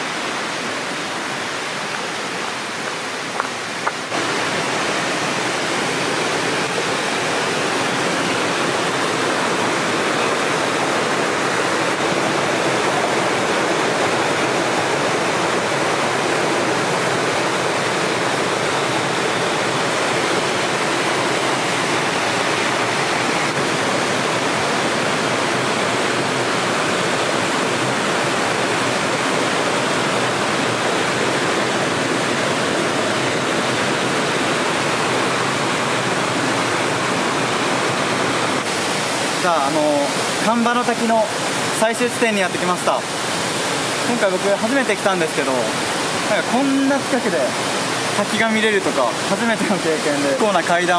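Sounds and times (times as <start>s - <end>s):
waterfall rushing: 0.0s - 50.9s.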